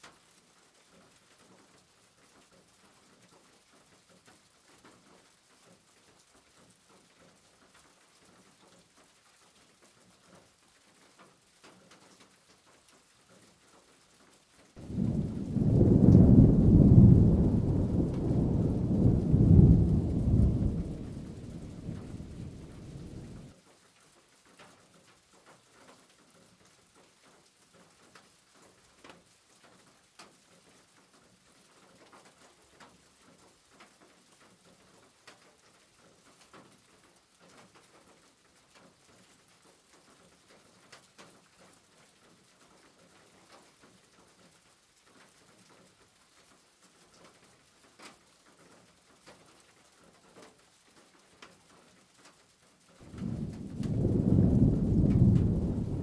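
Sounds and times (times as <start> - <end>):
faint scattered clicks and crackles: 0.0 - 56.0.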